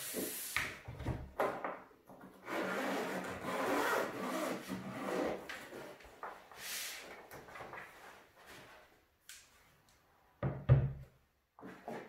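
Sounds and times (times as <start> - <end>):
zipper being pulled open: 2.5 - 5.4.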